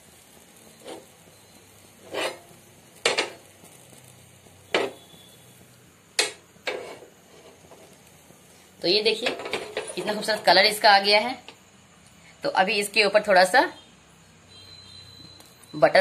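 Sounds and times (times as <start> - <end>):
iron pan clanking on burner grate: 3.0 - 3.4, 4.7 - 5.0, 9.2 - 10.1.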